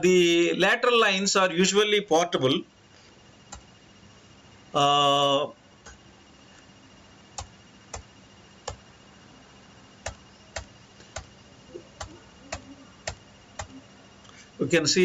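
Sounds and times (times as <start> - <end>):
faint steady hum: 0.0 - 15.0
computer mouse clicks: 3.5 - 3.7, 7.4 - 8.8, 10.0 - 11.4, 12.0 - 14.4.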